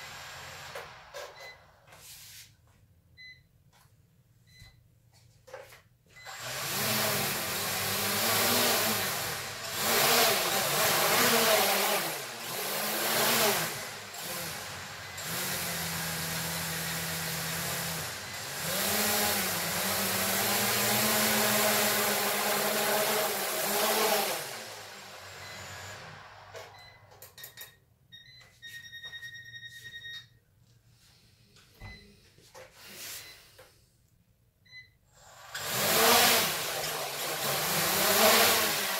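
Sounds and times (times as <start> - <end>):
drone propellers whirring: 6.3 - 26.5
electronic beep: 26.7 - 30.3.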